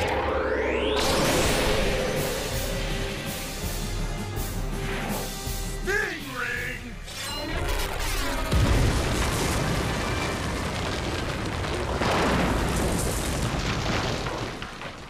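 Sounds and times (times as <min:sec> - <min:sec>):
rumble of breaking rock: 0:08.5 - 0:15.0.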